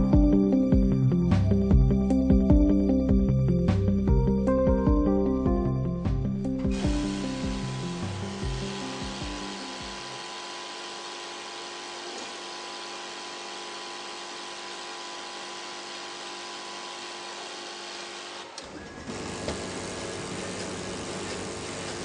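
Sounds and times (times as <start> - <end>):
machine whirring: 6.7 - 22.0.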